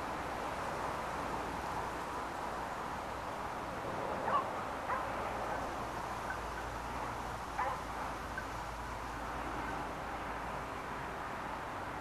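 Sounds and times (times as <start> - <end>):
outdoor field noise: 0.0 - 12.0
distant dog barking: 4.2 - 5.1, 7.6 - 7.8.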